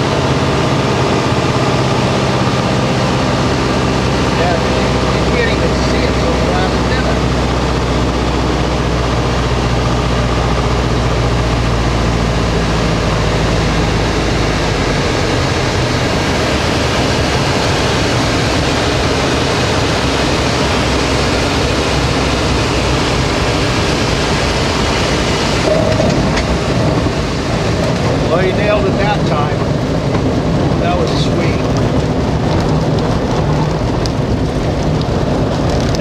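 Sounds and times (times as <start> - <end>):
light aircraft engine drone: 0.0 - 36.0
wind rushing: 12.4 - 36.0
wheels running on dirt: 14.8 - 36.0.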